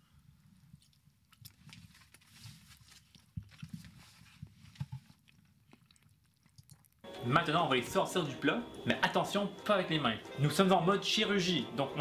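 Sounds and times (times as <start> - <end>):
person chewing: 0.7 - 4.2, 4.8 - 7.1.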